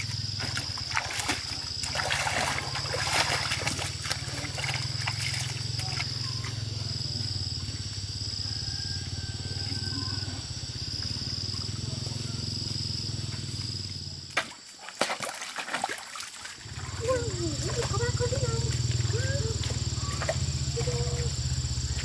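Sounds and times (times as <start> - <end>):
footsteps splashing in stream: 0.0 - 6.6, 13.6 - 22.0
insect trilling: 0.0 - 14.3, 16.1 - 22.0
steady low hum: 0.0 - 14.3, 16.6 - 22.0.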